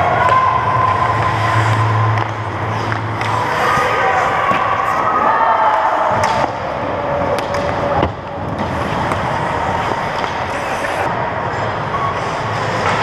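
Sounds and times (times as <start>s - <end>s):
hockey sticks clacking: 0.0s - 5.1s, 6.1s - 11.1s
skates scraping ice: 0.0s - 13.0s.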